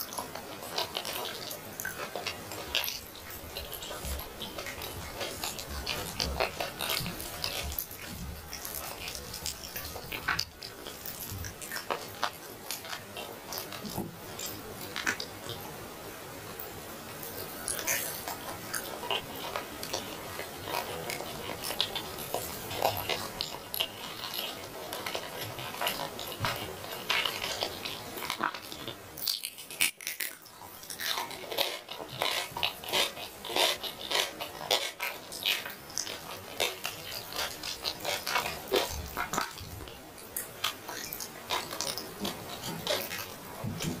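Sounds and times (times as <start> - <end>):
person chewing and tearing meat: 0.0 - 15.7, 17.2 - 44.0
wet clicks and crackles: 0.0 - 15.7, 16.5 - 44.0.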